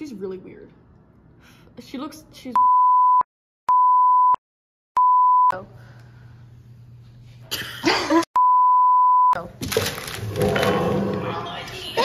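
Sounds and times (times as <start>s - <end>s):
electronic beep tone: 2.6s - 4.4s, 5.0s - 5.5s, 8.4s - 9.4s
low room hum: 5.5s - 8.2s.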